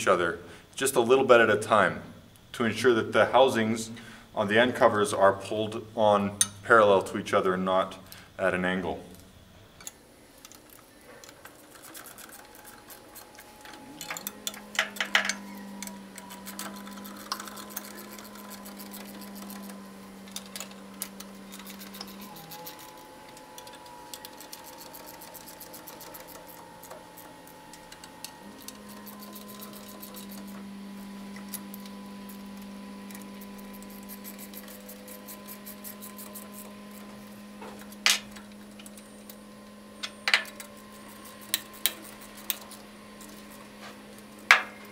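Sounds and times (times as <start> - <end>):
steady low hum: 0.0 - 44.9
ratchet and wrench clicking: 14.0 - 23.0, 40.3 - 43.4.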